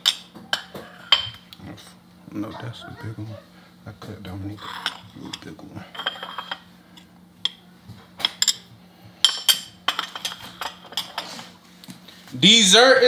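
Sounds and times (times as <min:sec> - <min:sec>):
spoon and plates clinking: 0:00.0 - 0:01.4, 0:04.6 - 0:07.6, 0:08.2 - 0:11.4.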